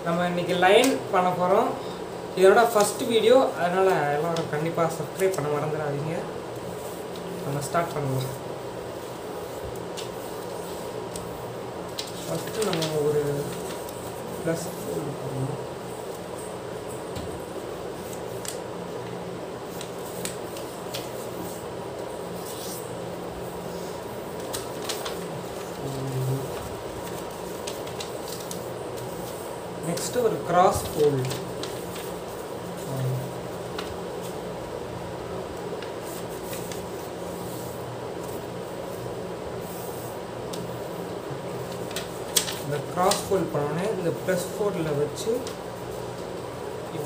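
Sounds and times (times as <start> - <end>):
steady background hum: 0.0 - 47.0
paper rustling and crackling: 6.6 - 16.4, 17.0 - 34.5, 35.5 - 47.0
paper crinkles: 9.0 - 15.5, 18.0 - 22.9, 23.7 - 34.4, 35.6 - 46.4.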